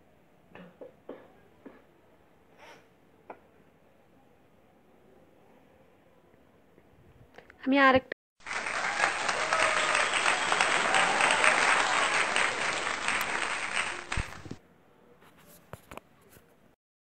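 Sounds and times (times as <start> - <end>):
crowd applause: 8.4 - 14.6.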